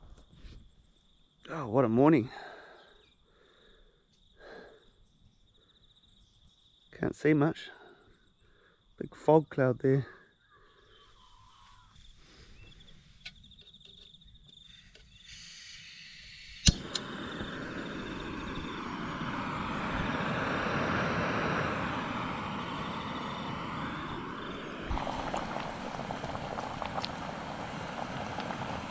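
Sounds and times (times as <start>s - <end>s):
gas burner hissing: 15.1s - 28.9s
stove igniter click: 16.6s - 17.6s.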